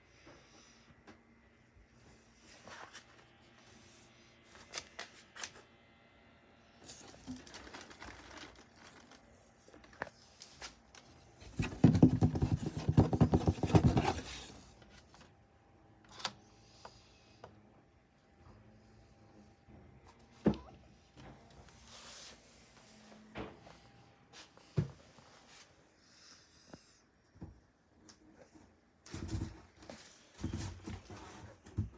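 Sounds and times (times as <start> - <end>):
cardboard rustling: 6.9 - 10.8, 11.4 - 14.6.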